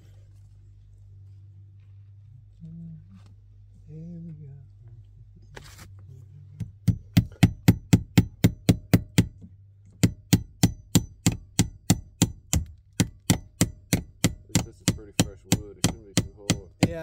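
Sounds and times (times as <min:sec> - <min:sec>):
hammer tapping staple into wood: 0:06.6 - 0:09.4, 0:10.0 - 0:17.0.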